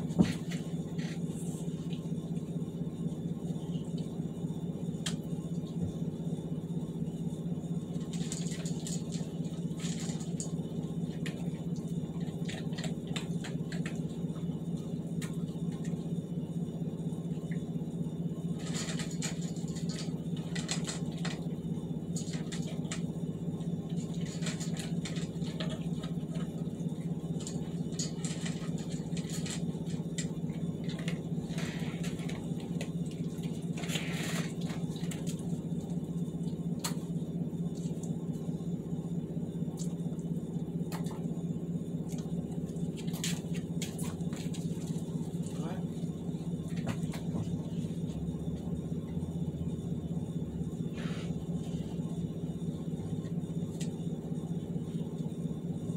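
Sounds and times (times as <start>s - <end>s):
steady low hum: 0.0s - 55.9s
dog crunching dry food: 8.1s - 10.5s, 18.6s - 21.4s, 24.0s - 26.4s, 27.4s - 29.6s.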